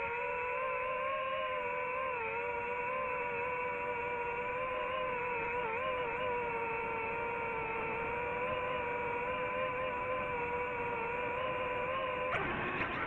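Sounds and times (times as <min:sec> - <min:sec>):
drone propellers whining: 0:00.0 - 0:13.0.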